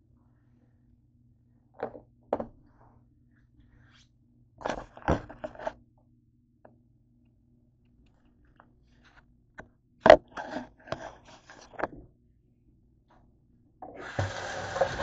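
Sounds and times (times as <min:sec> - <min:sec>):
clattering and rubbing: 0:10.1 - 0:12.0.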